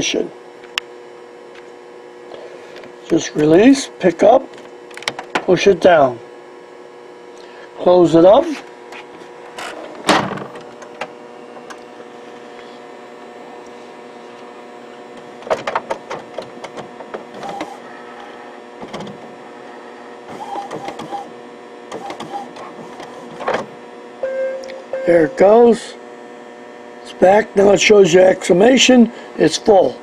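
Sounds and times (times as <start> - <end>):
printer mechanism humming: 7.3 - 12.6, 13.2 - 30.0
printer clicks and rattles: 15.4 - 17.8, 18.8 - 19.2, 20.3 - 21.3, 21.9 - 23.7.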